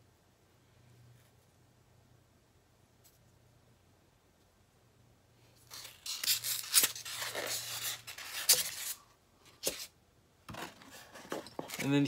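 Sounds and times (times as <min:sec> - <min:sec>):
packaging rustling and scraping: 0:05.6 - 0:09.9, 0:10.5 - 0:12.0.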